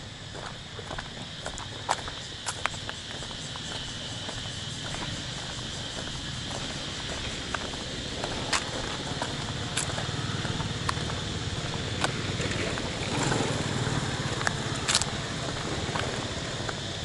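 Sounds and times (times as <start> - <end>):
steady high hiss: 0.0 - 17.0
footsteps tapping: 0.4 - 12.9
distant motorbike engine: 3.0 - 17.0.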